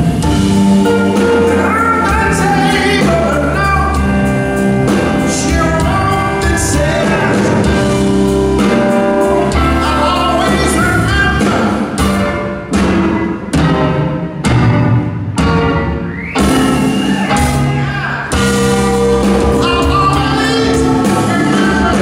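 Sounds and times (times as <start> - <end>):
blues band playing slow song: 0.0 - 22.0
man singing: 1.1 - 8.0, 8.6 - 12.0, 17.3 - 22.0.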